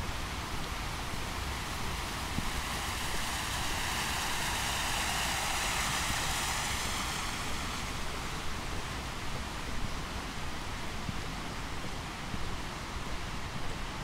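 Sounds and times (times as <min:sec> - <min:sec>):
distant vehicle passing: 0:00.7 - 0:09.2.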